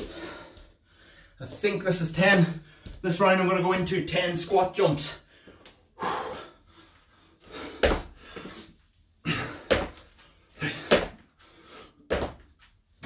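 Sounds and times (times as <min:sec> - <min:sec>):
hard breathing: 0:00.0 - 0:01.6, 0:05.2 - 0:12.1.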